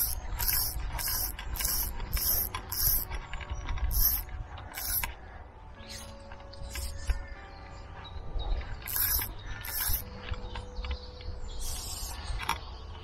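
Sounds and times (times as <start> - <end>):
fly reel ratchet buzzing: 0.0 - 5.1, 8.9 - 10.1.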